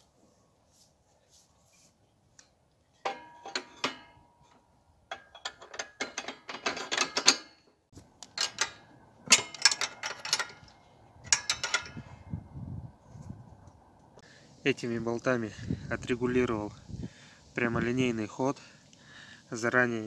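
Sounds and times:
steel clinks and rattles: 0:03.0 - 0:07.7, 0:08.3 - 0:12.2.

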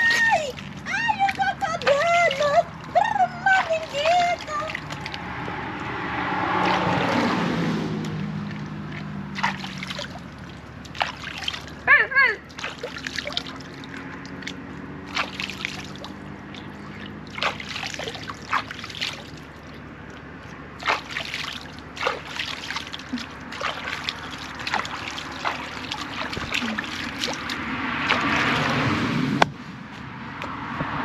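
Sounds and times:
water sloshing and splashing: 0:00.0 - 0:29.2.

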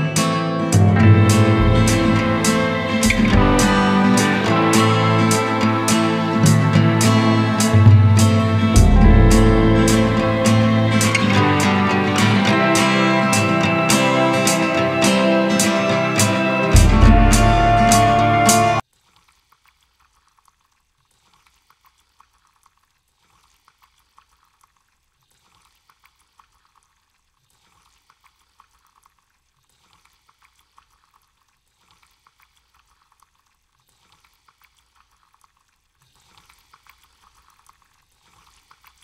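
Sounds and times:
faint crackles and ticks: 0:18.8 - 0:39.0.

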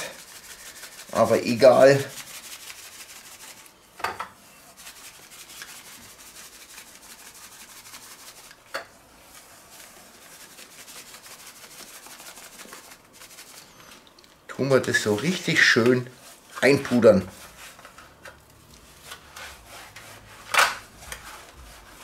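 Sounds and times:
rustle and patter of granules: 0:09.2 - 0:17.6.

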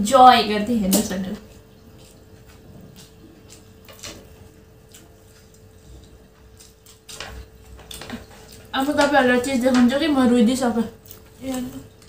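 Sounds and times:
faint steady hum: 0:00.0 - 0:12.0
people chewing noodles: 0:00.8 - 0:12.0
forks clicking on plastic plates: 0:07.1 - 0:10.2.

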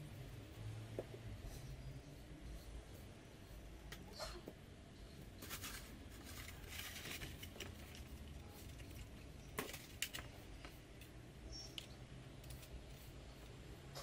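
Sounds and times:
rustling and scraping of wood: 0:05.4 - 0:10.8.

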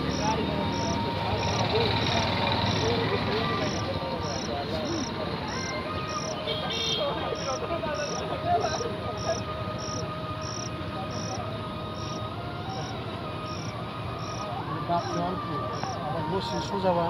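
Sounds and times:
cricket chirping: 0:00.0 - 0:16.0.

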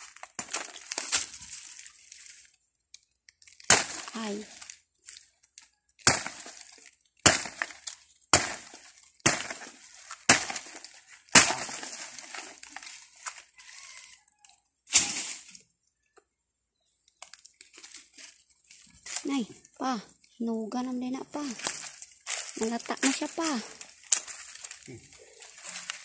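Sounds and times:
machete chopping banana stalk: 0:03.6 - 0:04.4, 0:06.0 - 0:12.7.

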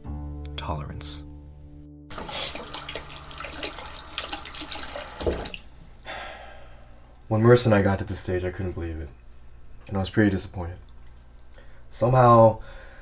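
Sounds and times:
tap running into sink: 0:02.1 - 0:05.6.

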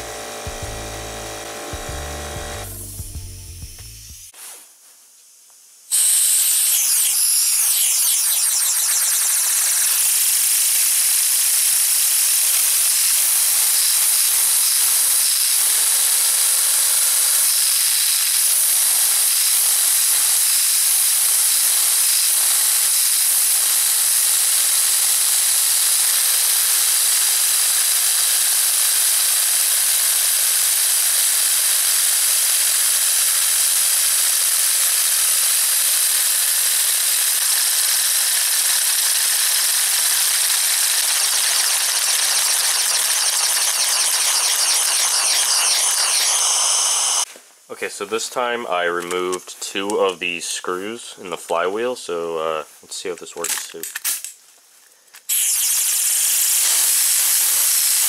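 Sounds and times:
rotor whirring: 0:05.9 - 0:23.8, 0:33.2 - 0:47.3
compressed air hissing: 0:05.9 - 0:24.2, 0:55.3 - 0:58.0.

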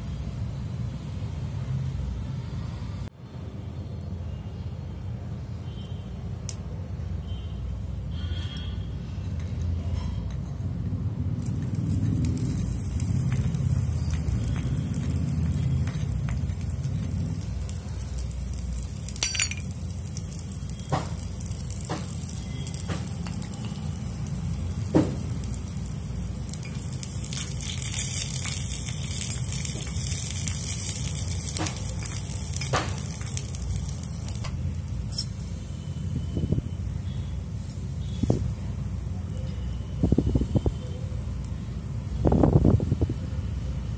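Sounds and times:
food sizzling in a pan: 0:11.2 - 0:36.2.

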